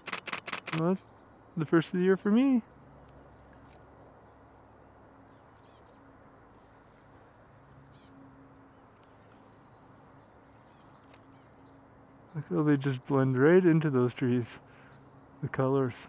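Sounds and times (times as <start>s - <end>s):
songbirds trilling and chirping: 0.0s - 16.0s.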